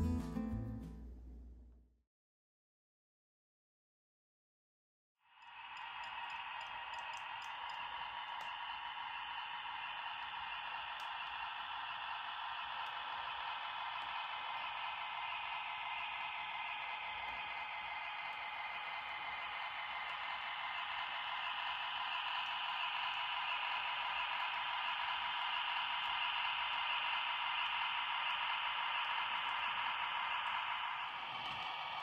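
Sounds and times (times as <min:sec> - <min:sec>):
model train motor and wheels humming: 0:05.3 - 0:32.0.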